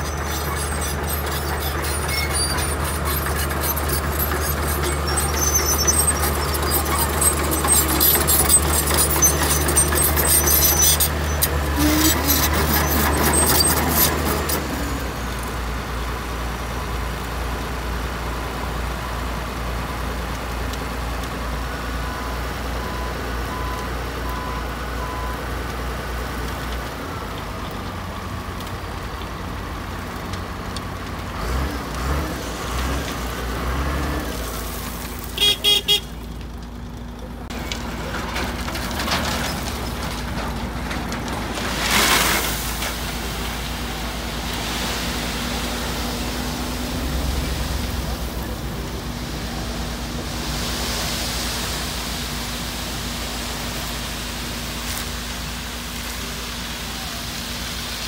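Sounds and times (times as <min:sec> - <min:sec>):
metallic clanking and scraping: 0:00.0 - 0:15.1, 0:37.5 - 0:43.8
diesel construction machinery running: 0:00.0 - 0:58.0.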